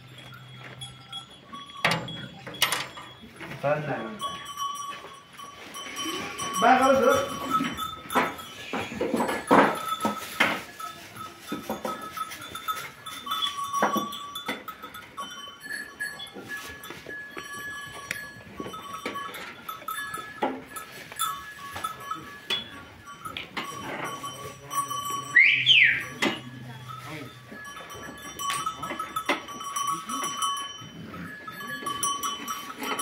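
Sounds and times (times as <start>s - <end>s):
high ringing tones: 0.0s - 33.0s
sheep jostling at metal trough: 6.6s - 26.4s.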